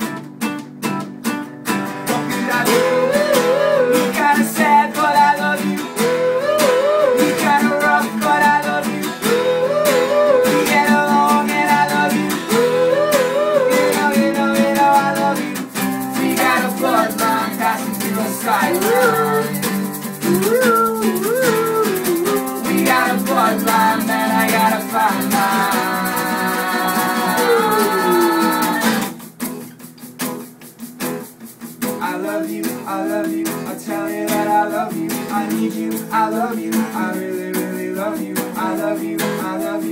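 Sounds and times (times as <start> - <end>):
acoustic guitars strumming: 0.0 - 39.9
shaker: 1.7 - 39.9
wordless melody line: 2.2 - 29.6.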